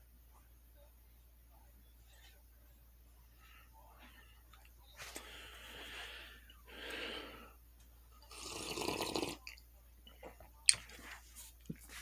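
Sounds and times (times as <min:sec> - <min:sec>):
person slurping coffee: 0:08.3 - 0:09.5.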